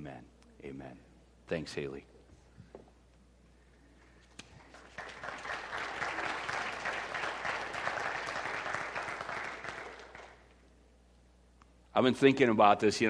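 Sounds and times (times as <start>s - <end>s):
congregation applauding: 4.4s - 10.6s.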